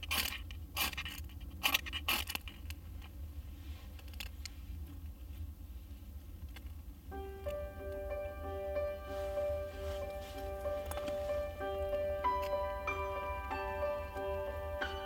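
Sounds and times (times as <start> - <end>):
tinder rustling: 8.7 - 15.0.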